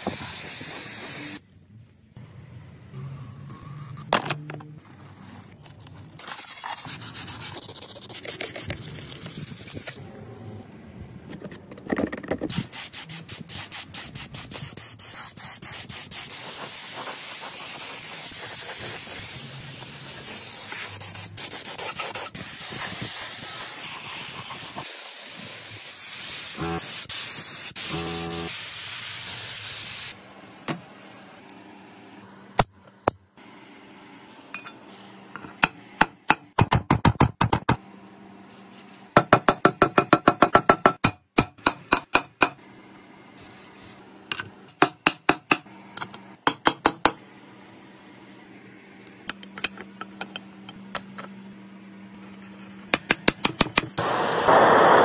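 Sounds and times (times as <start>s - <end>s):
spray paint hissing: 0.0s - 1.4s, 12.5s - 30.2s, 53.9s - 55.0s.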